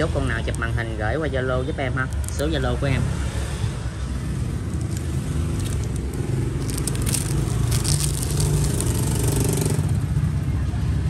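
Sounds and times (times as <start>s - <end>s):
road traffic rumble: 0.0s - 11.0s
crackling and scraping noises: 2.0s - 2.8s, 4.1s - 10.0s.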